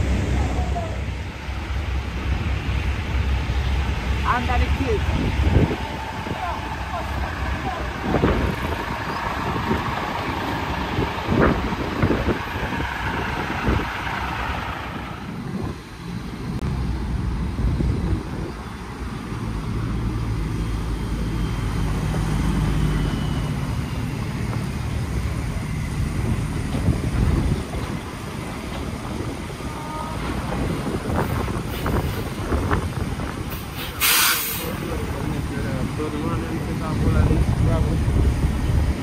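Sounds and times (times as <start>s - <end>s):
loud rushing noise: 0.0s - 20.5s
heavy vehicle engine running: 0.0s - 39.0s.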